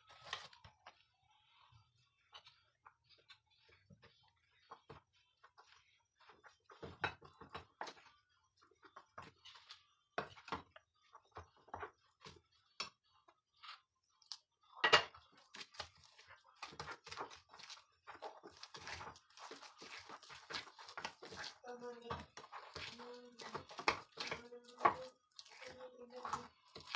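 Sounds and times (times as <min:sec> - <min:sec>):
metal spoon stirring in glass bowl: 0:15.0 - 0:26.9.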